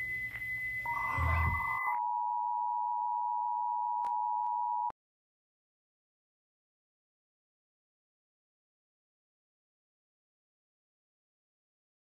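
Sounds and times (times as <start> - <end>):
high test tone beep: 0.0 - 4.9.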